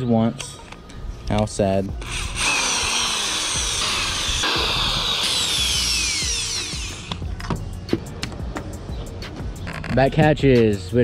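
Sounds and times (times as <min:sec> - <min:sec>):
electric drill whining: 0:02.0 - 0:07.4.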